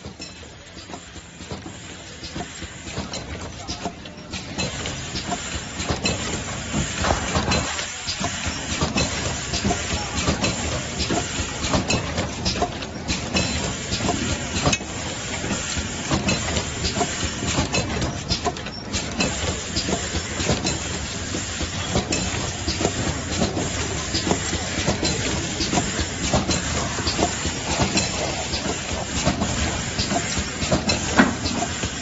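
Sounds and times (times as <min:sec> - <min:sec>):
cartoning machine clatter: 0:00.0 - 0:32.0.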